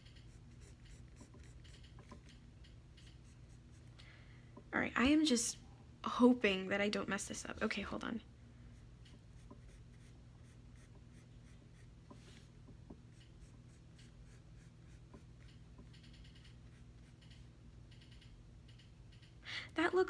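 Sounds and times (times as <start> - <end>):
pencil scratching on paper: 0.0 - 2.2, 9.3 - 12.5, 13.1 - 15.5
low steady hum: 0.0 - 20.0.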